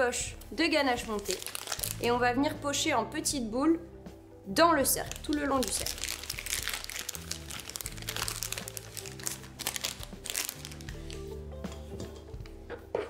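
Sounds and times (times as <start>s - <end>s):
background music with low notes: 0.0s - 13.0s
plastic bag crinkling: 1.0s - 2.1s, 5.0s - 11.3s.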